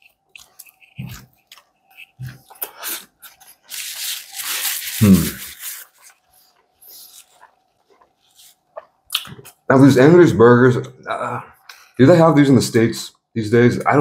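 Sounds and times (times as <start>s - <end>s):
wet mouth clicks: 0.0s - 3.4s, 8.8s - 9.6s
man chewing: 0.0s - 9.6s
paper napkin rustling: 2.8s - 8.6s.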